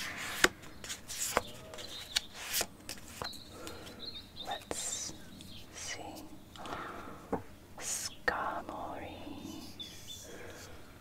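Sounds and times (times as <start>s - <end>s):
cards clicking and tapping: 0.0s - 4.0s
cards rustling: 0.0s - 6.7s
faint bird chirping: 0.6s - 11.0s.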